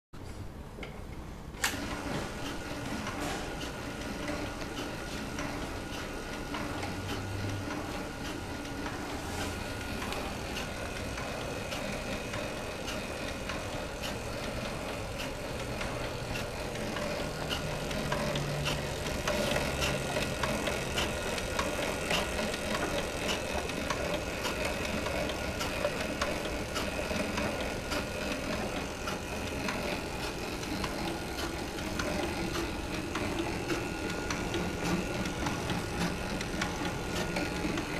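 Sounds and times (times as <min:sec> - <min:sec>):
motor hum: 0:01.4 - 0:37.9.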